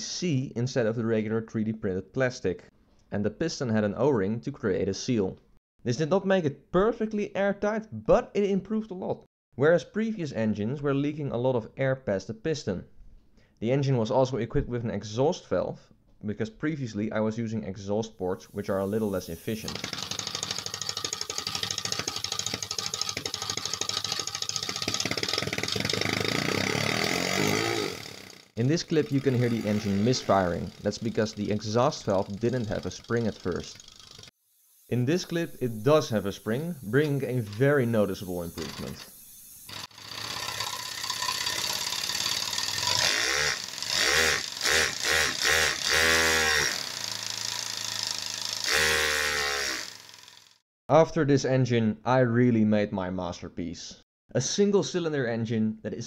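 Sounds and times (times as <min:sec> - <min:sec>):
air hissing: 0:18.5 - 0:20.4, 0:34.6 - 0:41.4
compressed-air engine clicking: 0:19.0 - 0:34.3, 0:35.2 - 0:50.4.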